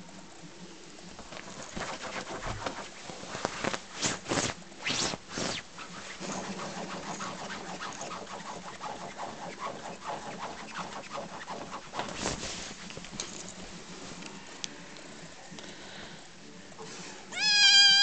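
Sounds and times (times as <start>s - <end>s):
bedding rustling: 1.2s - 14.3s
kitten scrambling on duvet: 1.3s - 13.7s.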